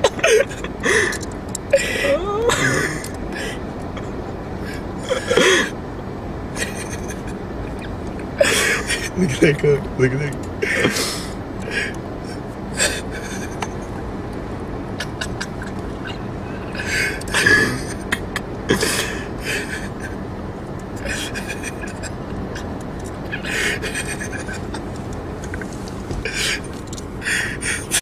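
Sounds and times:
stifled laughter and gasps: 0.0 - 3.6, 10.6 - 13.8, 21.0 - 22.7, 23.3 - 24.9
traffic rumble: 0.0 - 28.0.

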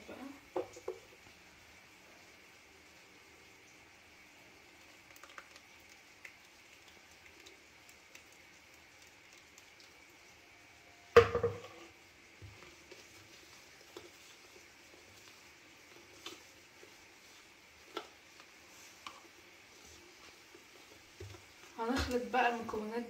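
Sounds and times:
liquid pouring: 3.4 - 22.1
whisk stirring batter: 4.8 - 10.0, 12.4 - 22.9.

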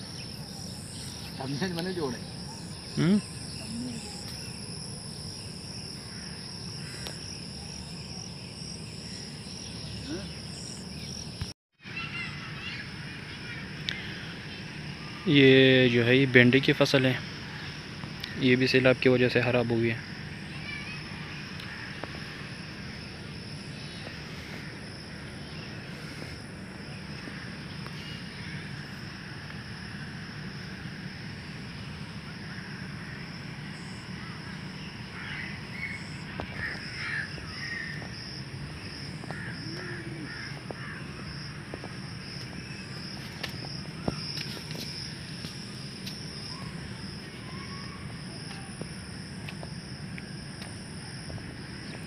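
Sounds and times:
crickets chirping: 0.0 - 52.0.

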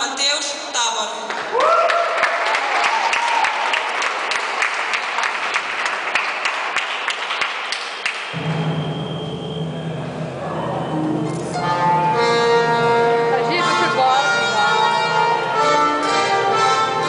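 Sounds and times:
audience clapping: 1.2 - 8.4
music over loudspeakers: 10.9 - 17.0.

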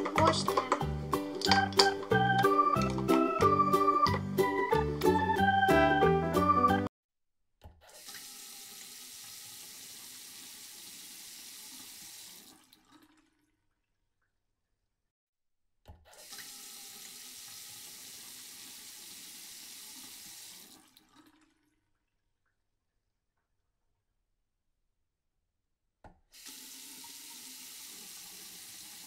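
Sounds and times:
toy faucet click: 1.4 - 3.2.

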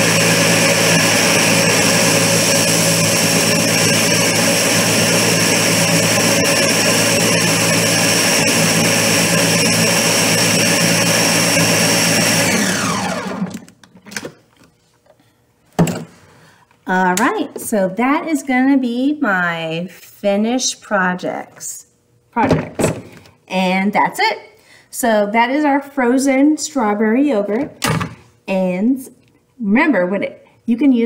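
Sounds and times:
blender running: 0.0 - 13.7.

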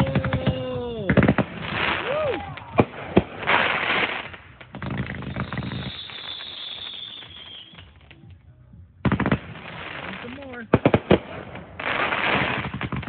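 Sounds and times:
fireworks crackling and popping: 0.0 - 13.0
high firework whistle: 5.0 - 8.0.

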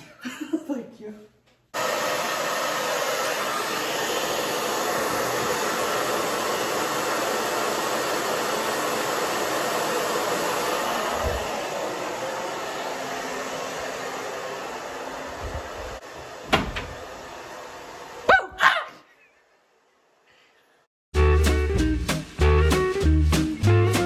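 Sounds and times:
hair dryer running: 1.7 - 18.3.

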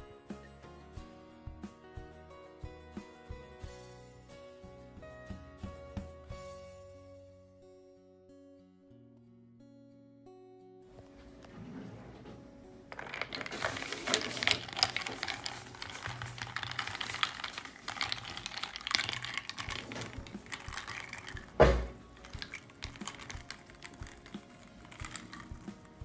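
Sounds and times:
ice clinking in a glass: 13.0 - 25.8.

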